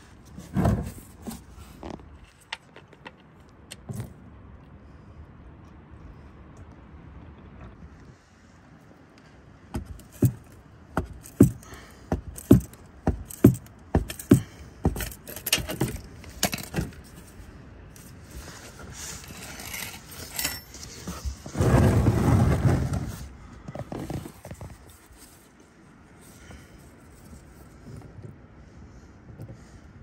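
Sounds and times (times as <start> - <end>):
sharp metallic clicks and knocks: 9.8 - 17.0
scraping rustle: 9.8 - 28.2.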